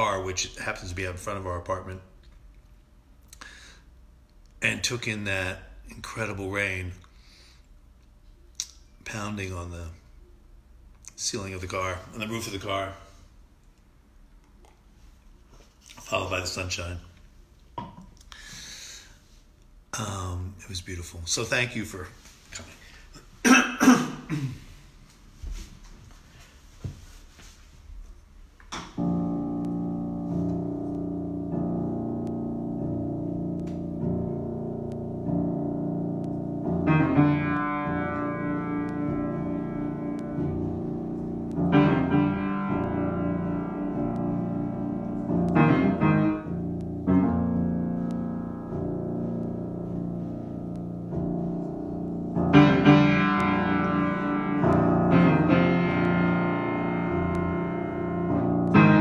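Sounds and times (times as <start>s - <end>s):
grand piano chords: 28.9s - 59.0s.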